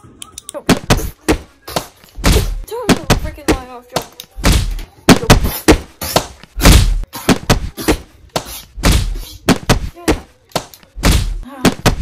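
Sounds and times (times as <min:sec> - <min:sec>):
loud thuds and bangs: 0:04.4 - 0:05.9, 0:06.6 - 0:08.0, 0:08.8 - 0:10.2, 0:11.0 - 0:12.0.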